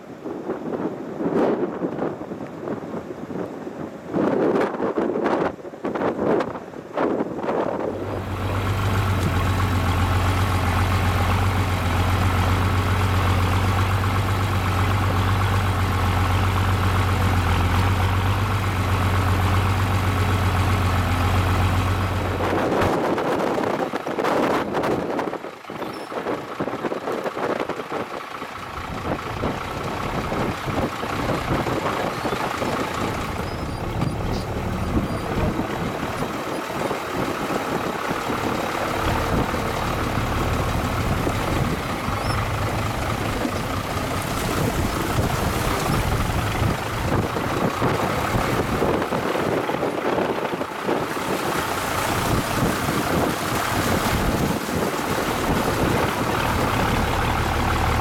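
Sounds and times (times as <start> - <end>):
tractor engine running: 6.0 - 58.0
water rushing and splashing: 7.8 - 58.0.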